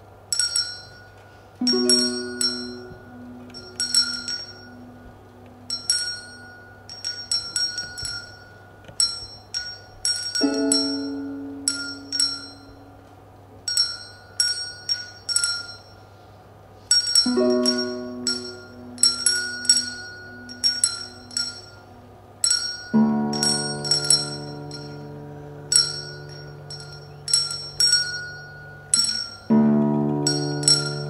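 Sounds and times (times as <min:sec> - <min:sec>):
handbells ringing: 0:00.3 - 0:12.9, 0:13.7 - 0:16.2, 0:16.9 - 0:31.0
low ringing bell tone: 0:00.3 - 0:31.0.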